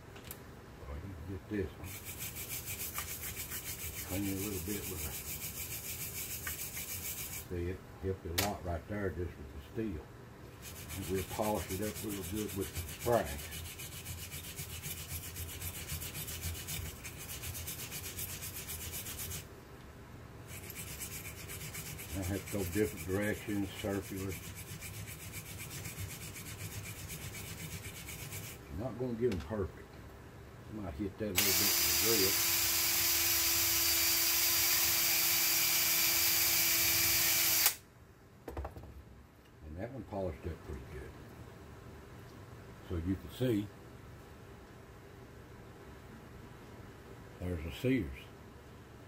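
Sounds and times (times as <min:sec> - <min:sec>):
wire brush scrubbing brass: 0:01.8 - 0:07.5, 0:10.5 - 0:19.5, 0:20.5 - 0:28.6, 0:31.4 - 0:33.1.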